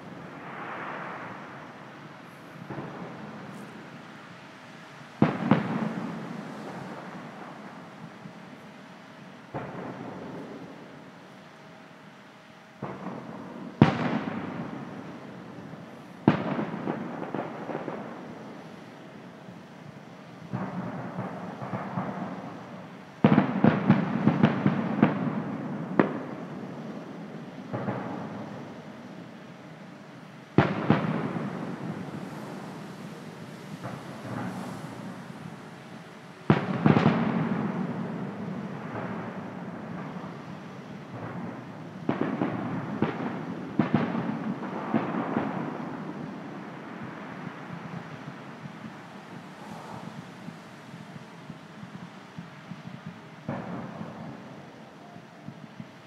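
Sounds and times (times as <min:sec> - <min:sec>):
aerial fireworks bursting: 0:00.0 - 0:11.4, 0:12.8 - 0:56.0
sharp crackling pops: 0:19.9 - 0:54.8.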